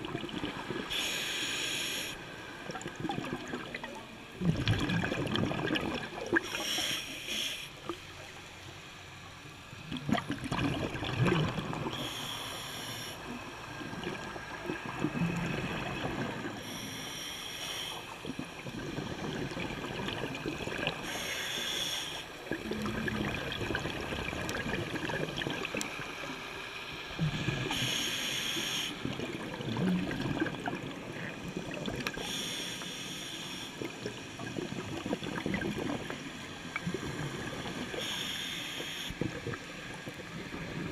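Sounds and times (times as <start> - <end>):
exhaled bubbles gurgling: 0.0 - 1.2, 2.5 - 6.7, 9.7 - 12.3, 13.2 - 16.8, 18.1 - 21.4, 22.4 - 26.5, 27.1 - 32.6, 33.8 - 38.3, 39.2 - 40.9
regulator breathing hiss: 0.9 - 2.2, 6.4 - 7.8, 11.9 - 13.4, 16.6 - 18.2, 21.0 - 22.4, 27.7 - 29.0, 32.2 - 33.9, 37.9 - 39.2.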